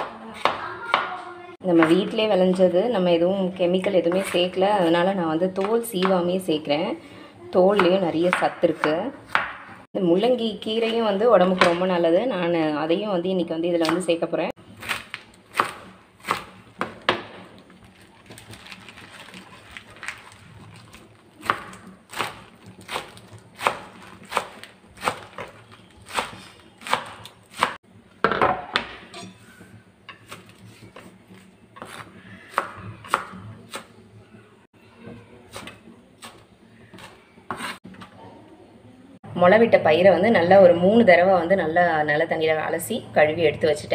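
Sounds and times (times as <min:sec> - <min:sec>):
knife chopping on wooden board: 0:26.1 - 0:27.8.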